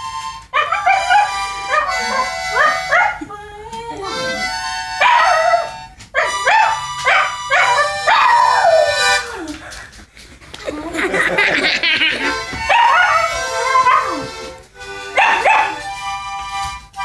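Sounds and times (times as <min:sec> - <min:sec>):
harmonica: 0:00.0 - 0:10.2, 0:11.1 - 0:17.0
dog howling: 0:07.5 - 0:09.7, 0:12.7 - 0:14.4.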